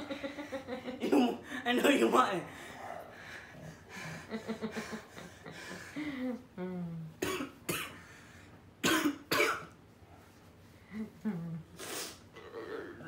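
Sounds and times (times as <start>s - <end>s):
boy coughing: 1.0s - 1.9s, 7.2s - 8.0s, 8.8s - 9.8s.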